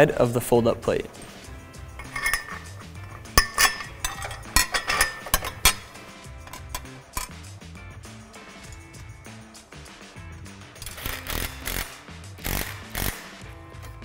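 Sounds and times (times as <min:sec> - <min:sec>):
soft background music: 0:00.0 - 0:14.0
metal hardware clinking: 0:01.2 - 0:07.5, 0:08.5 - 0:09.0.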